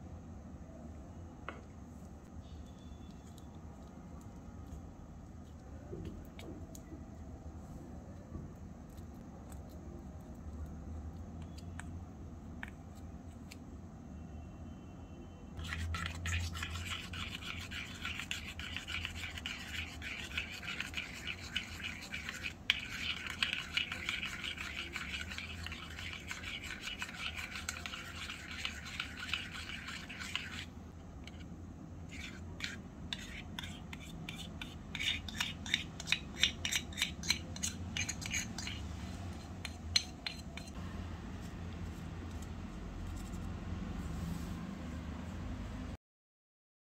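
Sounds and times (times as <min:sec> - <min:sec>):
spoon scraping metal bowl: 0:15.6 - 0:40.8.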